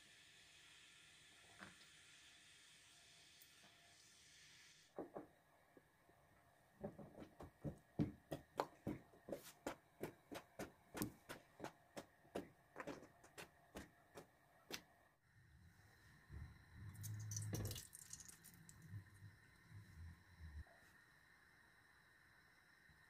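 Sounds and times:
low hum: 15.4s - 23.0s.

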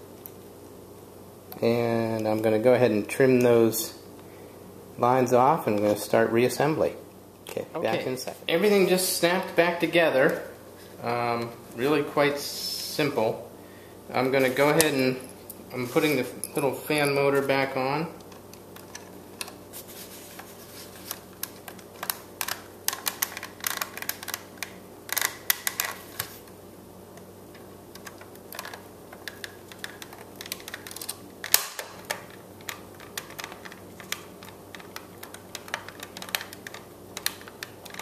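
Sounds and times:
screws and plastic rattling: 28.0s - 31.2s, 32.1s - 38.0s.

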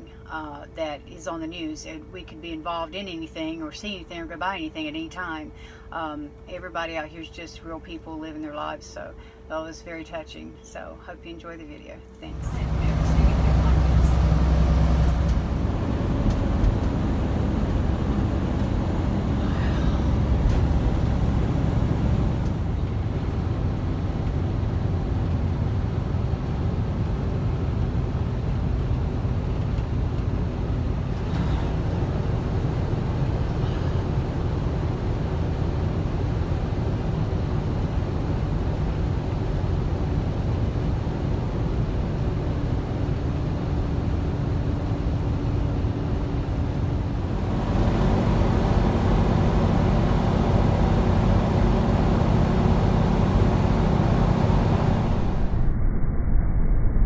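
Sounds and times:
truck engine rumble: 12.2s - 55.6s
road noise: 12.2s - 55.8s.

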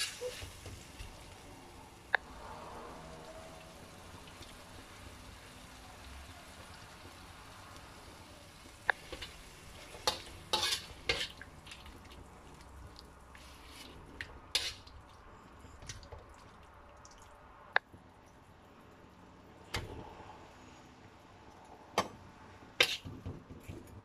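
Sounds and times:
chicken sizzling in a wok: 0.0s - 14.9s
metal spatula scraping pan: 9.0s - 11.9s, 13.4s - 14.9s, 22.8s - 23.1s
vegetables clattering into pan: 9.0s - 11.9s.

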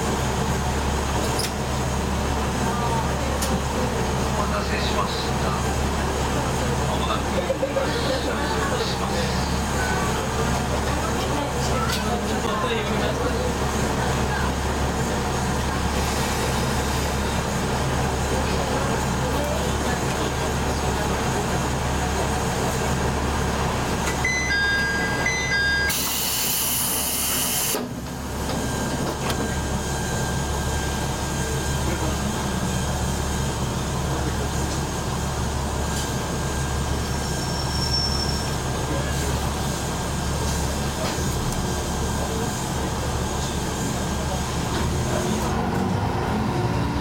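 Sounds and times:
electronic chime: 24.2s - 26.0s.

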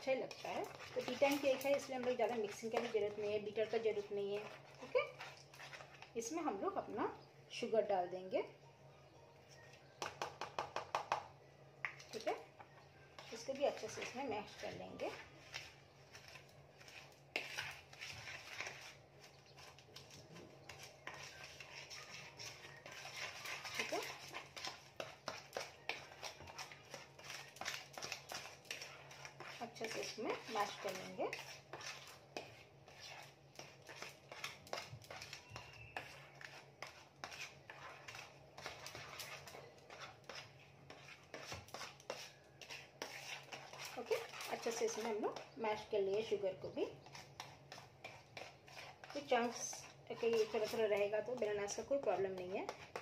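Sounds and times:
fork mashing bananas: 0.0s - 6.9s, 9.8s - 11.3s, 11.9s - 53.0s
fork tapping bowl: 10.0s - 11.3s.

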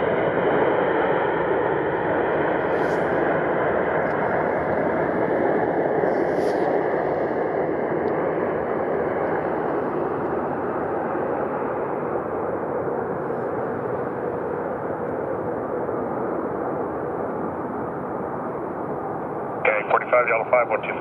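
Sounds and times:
jet engines roaring: 0.0s - 21.0s.

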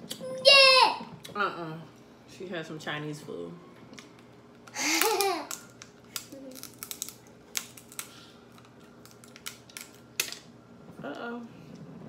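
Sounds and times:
crab shells cracking: 4.9s - 10.5s.

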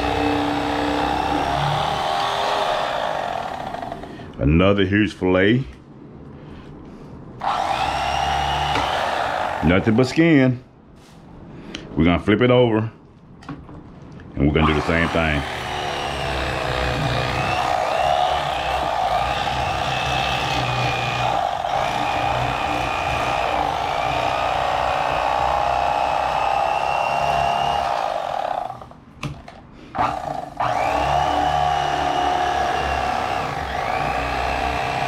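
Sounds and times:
electric knife motor whine: 0.0s - 4.2s, 7.4s - 9.9s, 14.6s - 28.9s, 30.0s - 35.0s.

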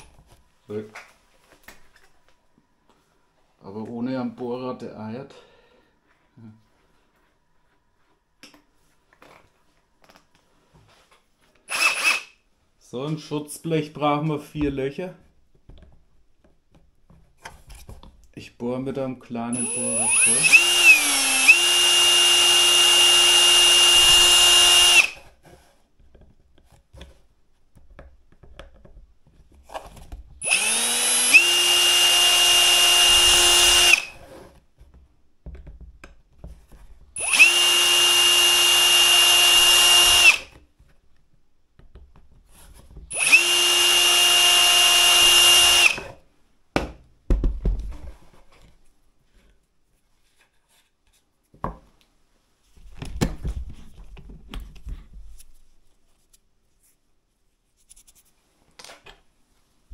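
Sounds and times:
power drill whining: 11.7s - 12.4s, 19.6s - 25.3s, 30.4s - 34.3s, 37.2s - 40.6s, 43.1s - 46.2s.

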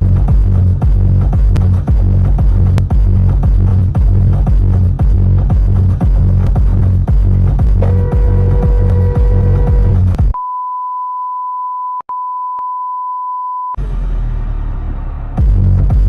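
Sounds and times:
electronic dance music: 0.0s - 10.4s
censor bleep tone: 7.8s - 13.8s.

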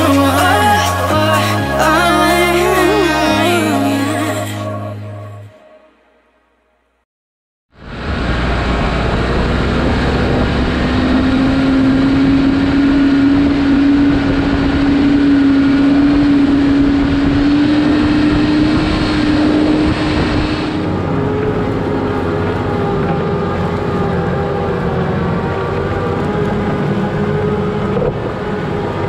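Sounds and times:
tractor diesel engine droning: 0.0s - 5.7s, 7.8s - 29.0s.

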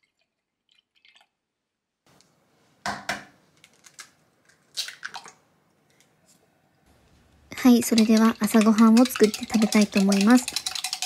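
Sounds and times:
egg tapping on jug: 7.9s - 11.0s.

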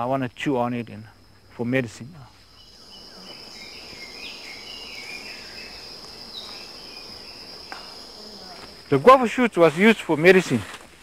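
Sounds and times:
insects trilling: 0.0s - 11.0s
bird chirps: 2.3s - 8.6s.

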